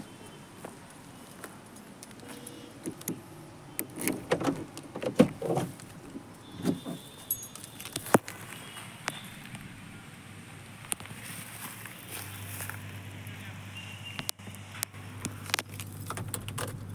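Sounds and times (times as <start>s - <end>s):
car door clicking and rattling: 2.8s - 7.2s, 15.5s - 16.9s
footsteps on dry grass: 11.0s - 13.1s.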